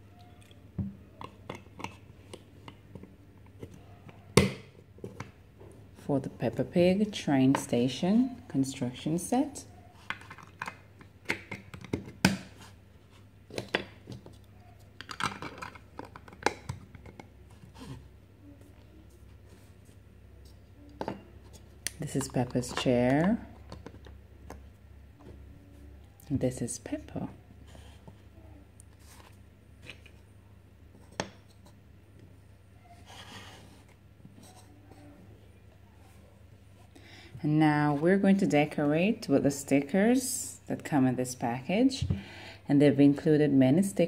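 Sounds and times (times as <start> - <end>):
plastic blocks clicking and knocking: 10.0 - 12.4, 15.0 - 17.3.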